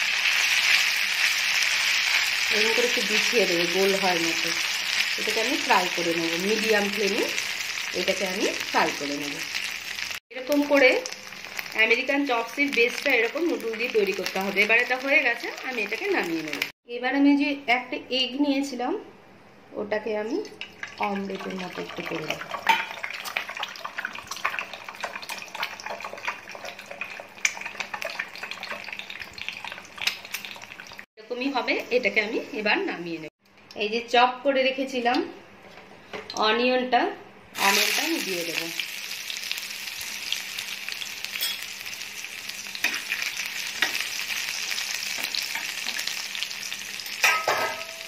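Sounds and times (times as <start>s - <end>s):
egg frying in hot oil: 0.0s - 16.8s, 20.6s - 31.1s, 37.6s - 48.0s.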